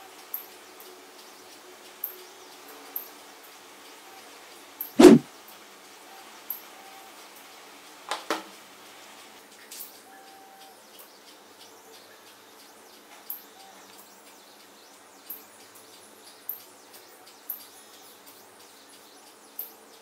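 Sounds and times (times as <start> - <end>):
sharp click: 5.0 - 5.2.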